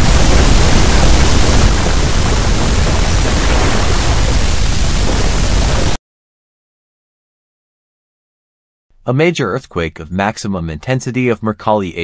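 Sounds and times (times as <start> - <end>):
deep rumble: 0.0 - 6.0
loud rushing hiss: 0.0 - 6.0.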